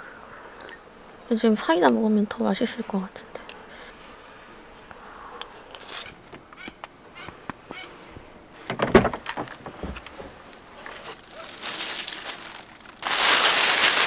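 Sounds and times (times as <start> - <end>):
knocks and thud: 8.6 - 10.4
plastic bag rustling: 8.6 - 14.0.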